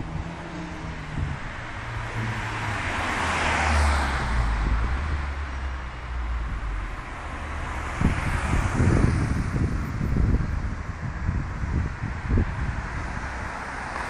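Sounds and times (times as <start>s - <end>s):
vehicle passing: 0.0s - 10.4s
low engine rumble: 4.0s - 13.8s.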